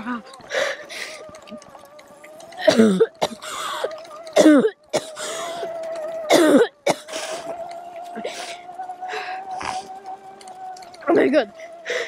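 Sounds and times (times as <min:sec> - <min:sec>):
electric motor whine: 0:00.0 - 0:12.0
person coughing: 0:02.6 - 0:05.6, 0:06.3 - 0:07.3.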